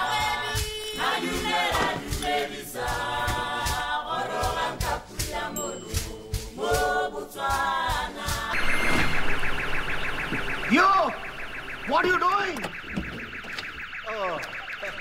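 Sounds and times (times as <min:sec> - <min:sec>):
steady beat: 0:00.0 - 0:08.6
choir singing in harmony: 0:00.0 - 0:08.9.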